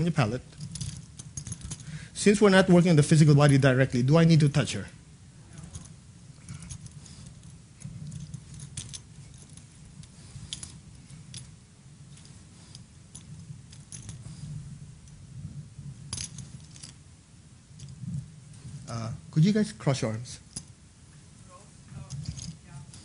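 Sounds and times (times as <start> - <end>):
steady low hum: 0.0 - 23.0
faint rustles: 5.3 - 19.4, 20.1 - 23.0.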